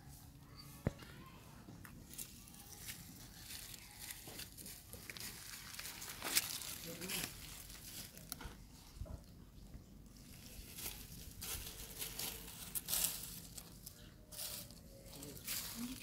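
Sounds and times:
dry leaves rustling and crunching: 2.0s - 8.6s, 10.2s - 16.0s.

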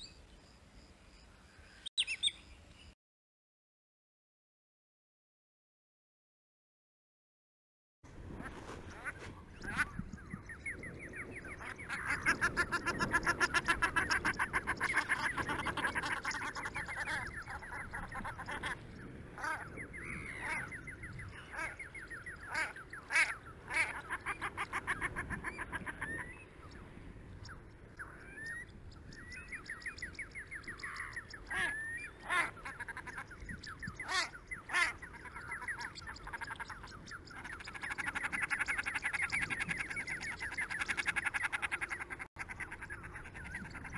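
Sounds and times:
ducks calling: 11.6s - 26.5s, 29.6s - 43.9s.

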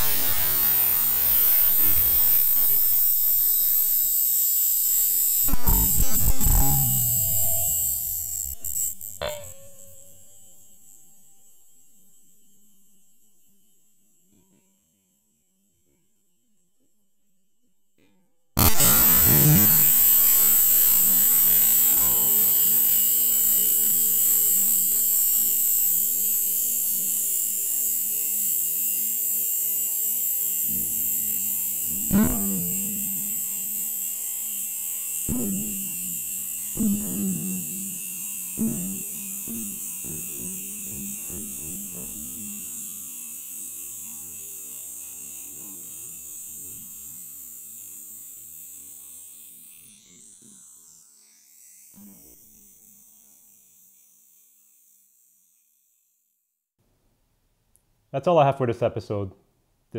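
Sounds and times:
loud hiss of escaping gas: 0.0s - 3.0s.

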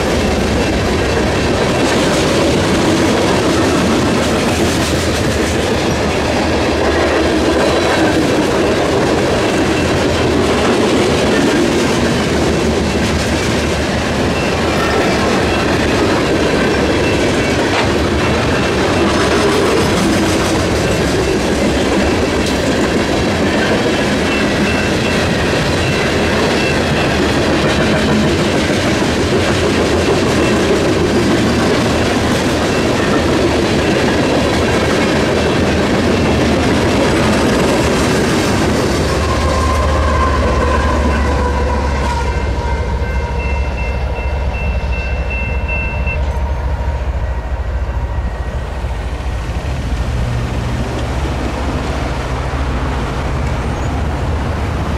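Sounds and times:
wheels clickety-clack: 0.0s - 42.3s
train cars rumbling past: 0.0s - 54.9s.

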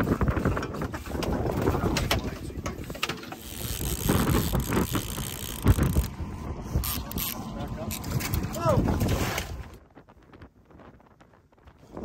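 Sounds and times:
fishing reel ratcheting clicks: 3.0s - 6.1s, 6.8s - 8.4s.

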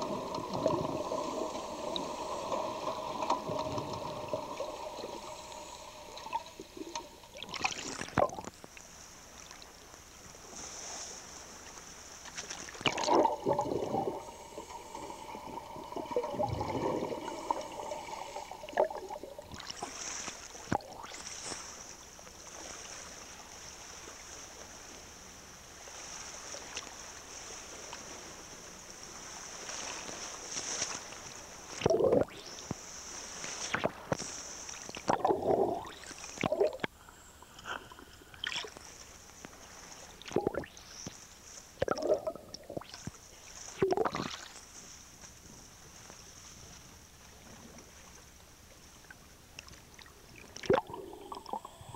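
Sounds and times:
diver's exhaled air bubbling: 0.0s - 8.5s, 12.8s - 20.1s, 31.8s - 32.6s, 35.0s - 38.8s, 40.2s - 40.8s, 41.8s - 43.0s, 43.8s - 44.5s, 50.6s - 51.9s
steady hiss: 0.0s - 12.4s, 13.1s - 41.8s.

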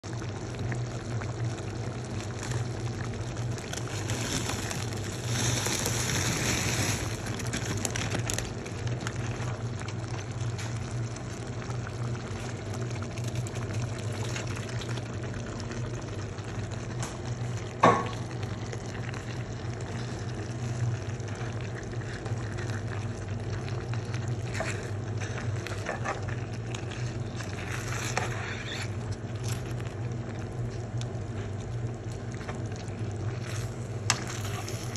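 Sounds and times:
sauce simmering and bubbling: 0.0s - 34.9s
spatula stirring pan: 24.0s - 29.3s.

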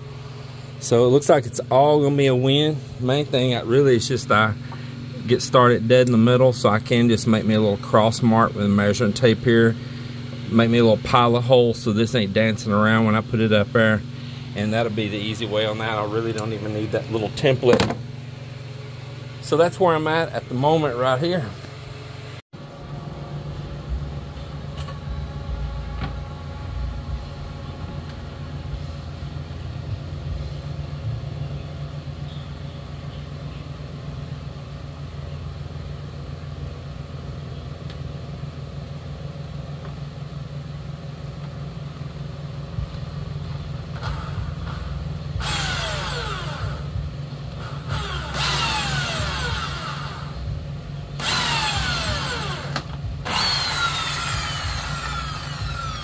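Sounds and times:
steady low hum: 0.0s - 56.0s
power drill whining: 44.0s - 44.8s, 45.4s - 46.9s, 47.6s - 50.4s, 51.2s - 56.0s.

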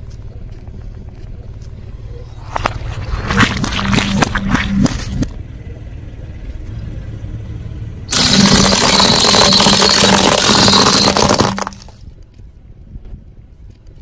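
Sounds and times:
car engine hum: 0.0s - 13.9s
plastic toys crunching under tyre: 2.4s - 5.2s, 8.1s - 12.1s.

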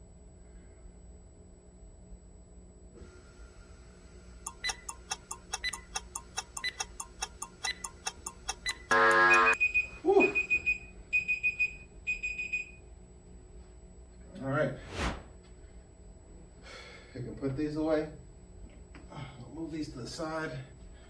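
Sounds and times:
rapid timer ticking: 4.5s - 9.6s
high-pitched alarm beeps: 4.5s - 12.8s
loud buzzer: 8.7s - 9.8s.

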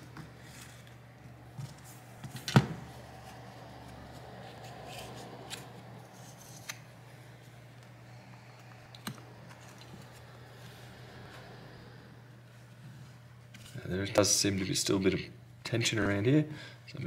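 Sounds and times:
faint scraping: 0.0s - 13.9s.

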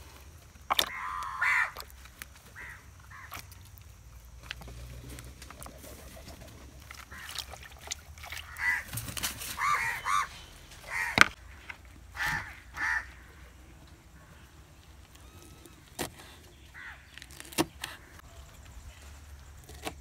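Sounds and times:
hands washing vegetables in water: 0.4s - 11.3s
bird calling: 0.7s - 3.6s, 4.6s - 19.2s.

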